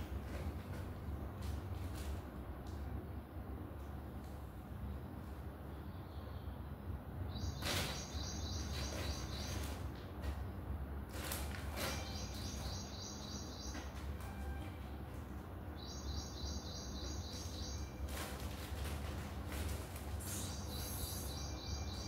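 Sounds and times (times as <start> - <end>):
plastic bag crinkling and rustling: 18.0 - 20.3
rapid high chirping: 20.2 - 22.0.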